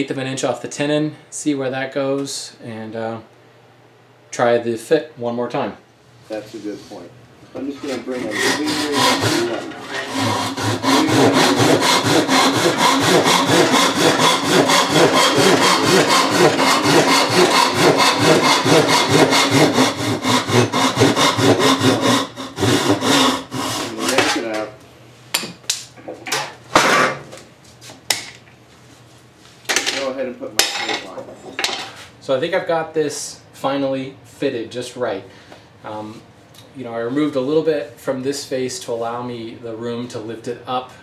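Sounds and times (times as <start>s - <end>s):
hand saw cutting wood: 7.8s - 24.7s, 26.8s - 27.2s.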